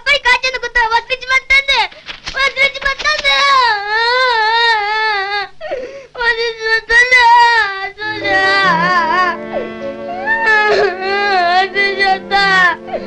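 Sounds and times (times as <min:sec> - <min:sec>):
boy crying in wails: 0:03.3 - 0:13.0
gasping breaths: 0:05.6 - 0:06.2
background music: 0:07.3 - 0:13.0.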